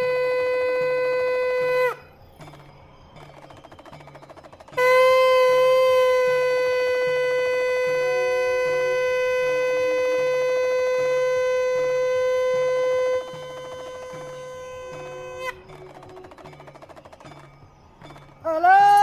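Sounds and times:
conch shell blown: 0.0s - 2.2s, 4.8s - 15.7s.

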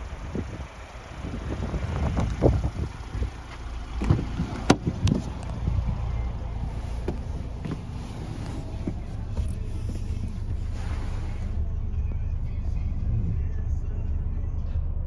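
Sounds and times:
wind rumble on microphone: 0.0s - 3.4s, 4.0s - 6.3s
car door handle and latch clicks: 4.0s - 5.6s, 7.0s - 7.9s.

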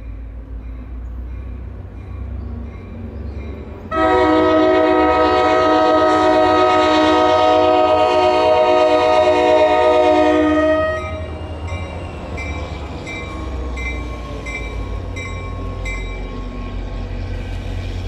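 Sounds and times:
low train rumble: 0.0s - 18.0s
train horn chord: 3.9s - 11.3s.

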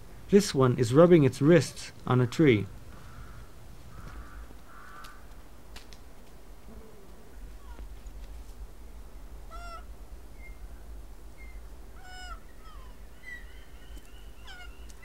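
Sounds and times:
steady low hum: 0.0s - 15.0s
lemur meow-like calls: 9.5s - 9.9s, 12.0s - 13.7s, 14.3s - 15.0s
small birds chirping: 9.5s - 15.0s.

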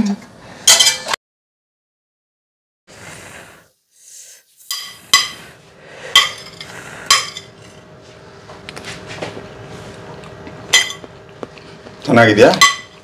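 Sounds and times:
spoon scraping: 4.6s - 5.5s
spoon clinking against plate: 4.7s - 5.4s, 6.2s - 7.5s, 10.7s - 11.1s, 12.5s - 13.0s.

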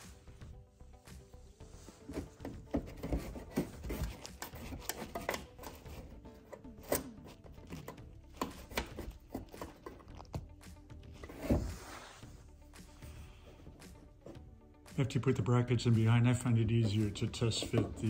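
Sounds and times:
background music: 0.0s - 18.0s
rubbing and scraping: 1.6s - 10.3s, 11.1s - 14.5s, 15.9s - 18.0s.

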